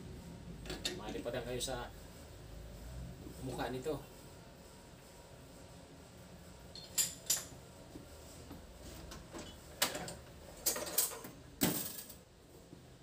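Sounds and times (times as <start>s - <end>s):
metal tools clinking: 6.7s - 7.5s.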